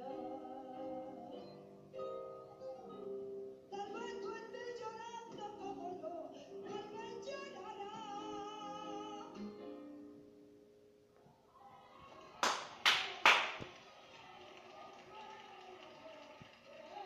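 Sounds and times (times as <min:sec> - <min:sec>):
woman singing through television: 0:00.0 - 0:09.7
loud hand claps: 0:12.2 - 0:17.0.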